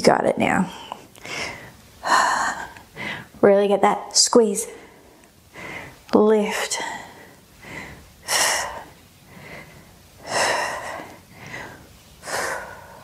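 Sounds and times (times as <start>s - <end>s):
woman breathing hard: 0.7s - 3.4s, 4.7s - 6.1s, 6.8s - 13.0s.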